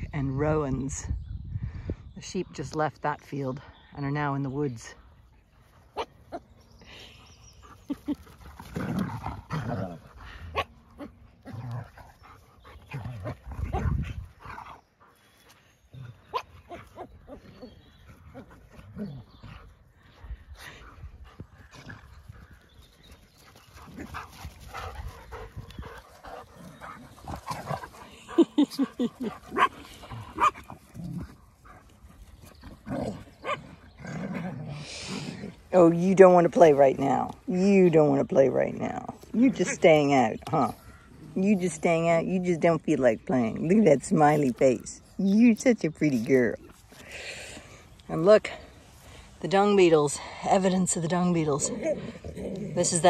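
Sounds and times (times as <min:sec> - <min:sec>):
dogs barking and yapping: 0:05.5 - 0:06.7, 0:07.5 - 0:19.8, 0:20.7 - 0:38.3.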